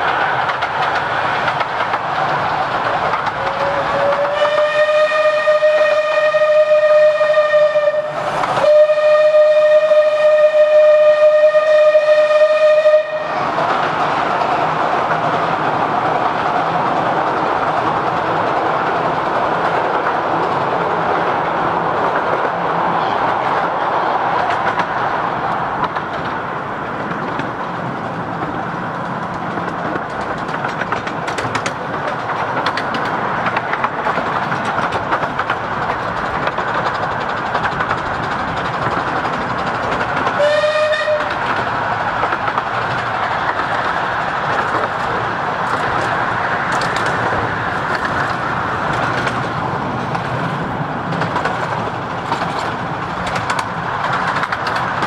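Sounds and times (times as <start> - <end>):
train wheels rumbling on rails: 0.0 - 55.0
steam whistle: 3.4 - 13.4, 40.4 - 41.4.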